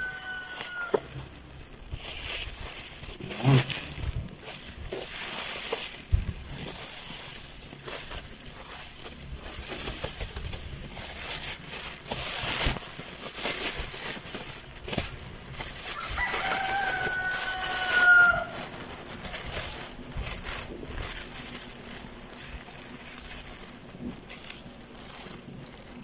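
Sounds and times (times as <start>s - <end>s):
rooster crowing: 0.0s - 1.1s, 15.8s - 18.8s
plastic bag rustling: 0.0s - 26.0s.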